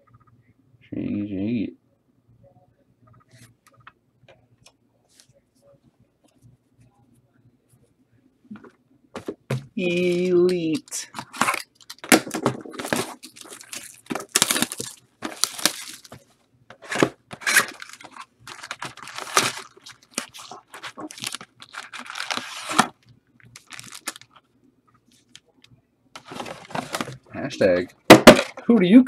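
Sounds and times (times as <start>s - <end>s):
card pack wrappers tearing: 10.1s - 16.2s, 16.9s - 22.9s, 23.6s - 24.4s.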